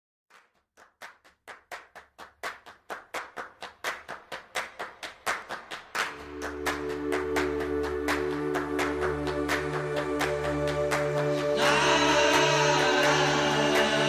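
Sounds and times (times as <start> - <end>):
rhythmic claps: 0.3 - 14.0
music track: 5.7 - 14.0.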